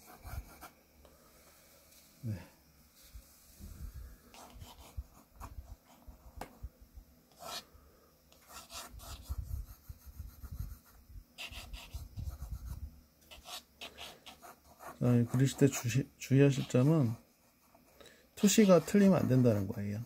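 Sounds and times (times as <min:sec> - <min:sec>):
pencil scratching on paper: 0:00.0 - 0:00.7, 0:04.4 - 0:06.4, 0:07.3 - 0:07.7, 0:08.3 - 0:20.0.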